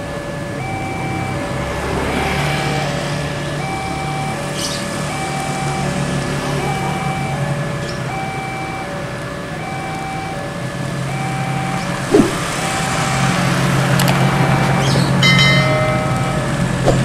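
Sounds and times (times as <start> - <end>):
road traffic engines: 0.0 - 17.0
two-pitch electronic beeping: 11.1 - 13.3.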